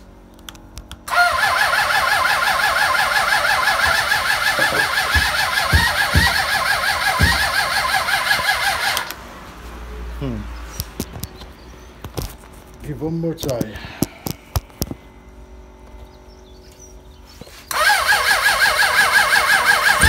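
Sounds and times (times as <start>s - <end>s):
starter motor cranking engine: 1.0s - 9.2s, 17.7s - 20.0s
low thumps: 3.8s - 7.8s.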